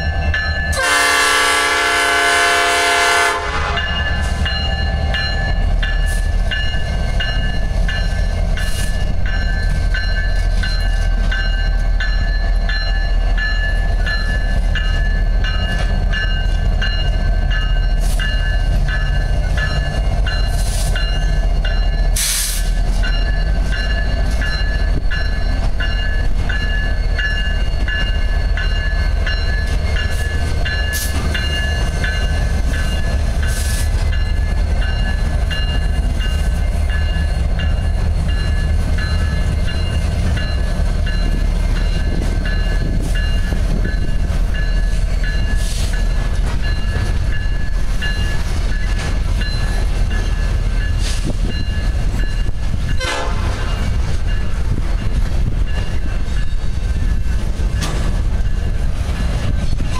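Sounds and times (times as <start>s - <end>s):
crossing bell dinging: 0.0s - 59.9s
diesel locomotives rumbling: 0.0s - 59.9s
train horn chord: 0.7s - 4.0s, 53.0s - 53.8s.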